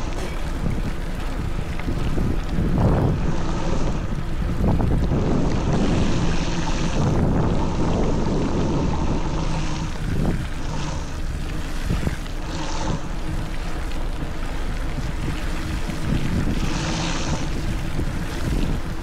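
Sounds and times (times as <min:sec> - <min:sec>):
bike tyres rolling: 0:00.0 - 0:19.0
wind rumble on microphone: 0:00.0 - 0:19.0
hissing surges: 0:03.0 - 0:19.0.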